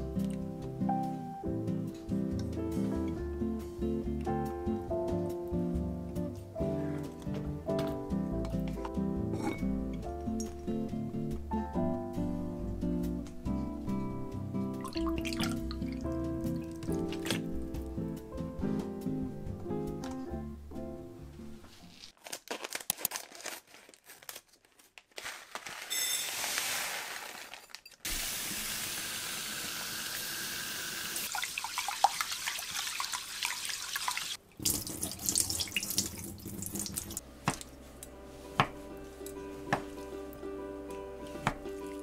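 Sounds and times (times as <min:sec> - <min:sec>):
soft background music: 0:00.0 - 0:22.1, 0:37.1 - 0:42.0
tap water running into bowl: 0:31.2 - 0:37.2.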